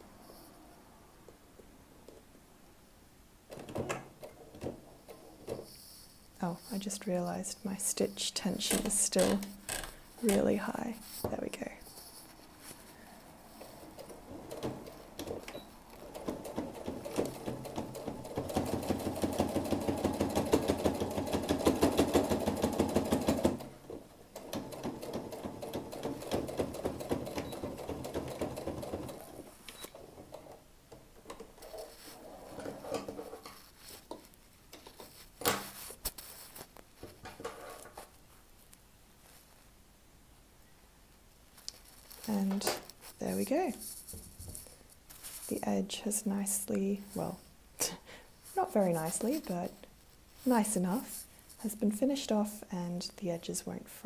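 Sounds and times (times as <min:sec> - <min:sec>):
sewing machine stitching: 0:13.6 - 0:34.0.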